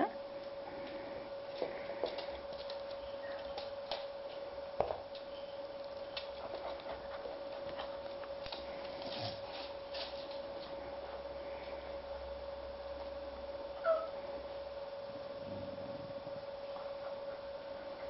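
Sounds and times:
steady hum: 0.0 - 18.0
puppies suckling clicks and smacks: 5.1 - 9.0.

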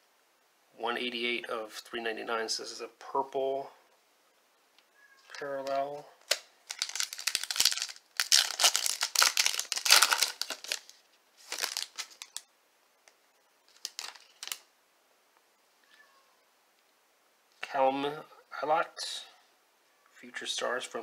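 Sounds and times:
foil wrapper crinkling and tearing: 6.2 - 12.5, 13.7 - 14.7.

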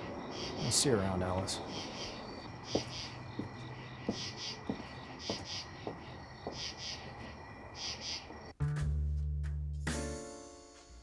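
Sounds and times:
crickets chirping: 0.0 - 8.6.

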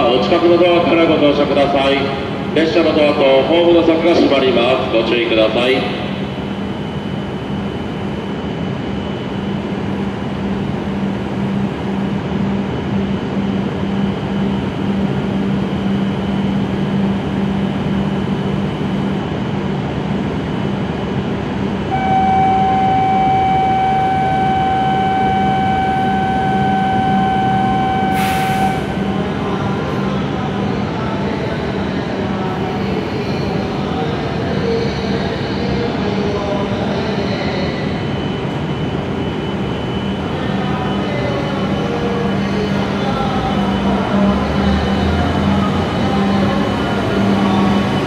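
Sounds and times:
train equipment humming: 0.0 - 48.0
steady electronic tone: 21.9 - 29.2.

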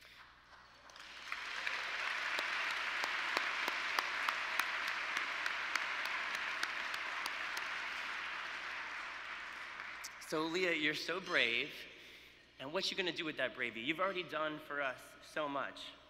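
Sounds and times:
close sharp clapping: 0.0 - 10.7
audience applause: 0.5 - 10.4.

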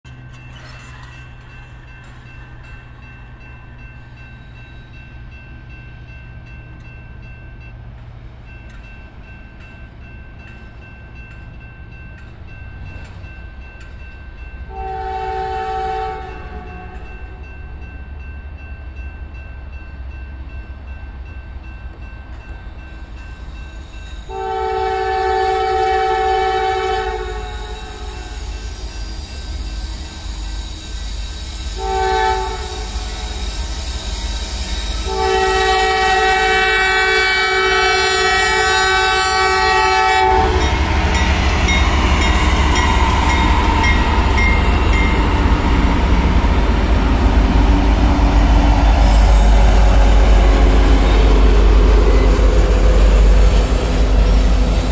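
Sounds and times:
crossing warning bell ringing: 0.1 - 54.9
locomotive horn blasts: 14.7 - 17.0, 24.3 - 28.5, 31.7 - 33.4, 35.0 - 44.7.

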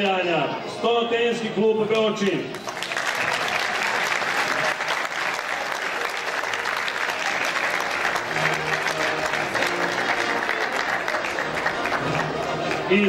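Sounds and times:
audience applauding: 2.5 - 13.0
faint background music: 6.2 - 13.0.

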